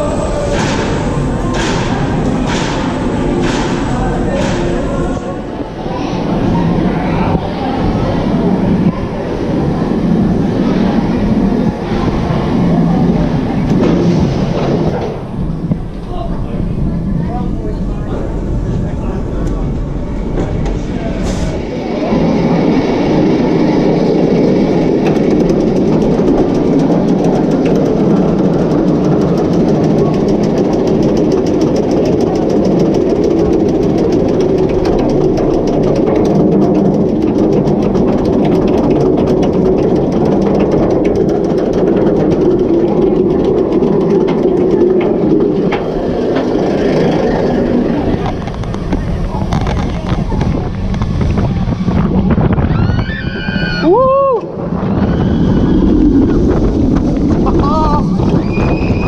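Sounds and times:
roller coaster chain lift rumble: 0.0 - 59.0
rapid chain lift clicking: 22.6 - 50.2.

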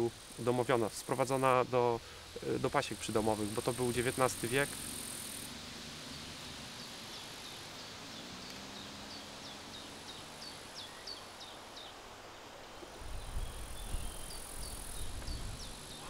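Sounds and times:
steady outdoor hiss: 0.0 - 16.0
bumblebee buzzing: 3.0 - 9.2
small bird chirping: 13.1 - 16.0.

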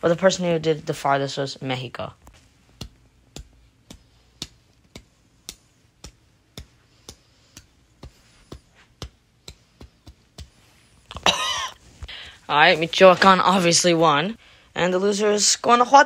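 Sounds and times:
fingertip flicks on paper: 2.4 - 10.9.

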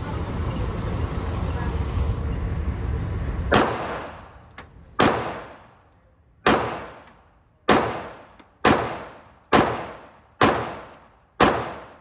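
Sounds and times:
pistol shots echoing indoors: 6.5 - 12.0.

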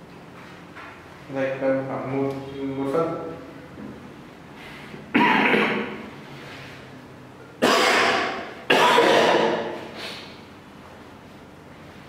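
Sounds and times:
person coughing: 5.1 - 6.0, 7.6 - 9.8.

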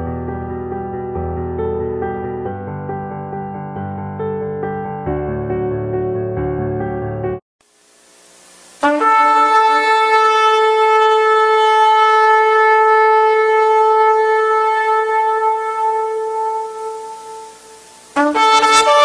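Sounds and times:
shofar blast: 8.8 - 19.0.

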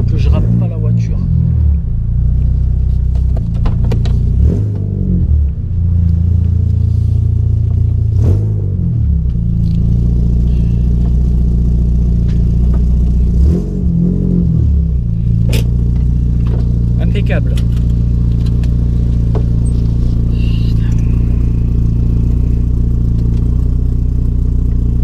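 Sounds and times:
car engine running at low speed: 0.0 - 25.0.

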